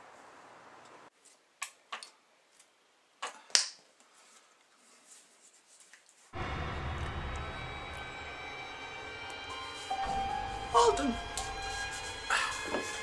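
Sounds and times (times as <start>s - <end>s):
faint room hiss: 0.0s - 6.4s.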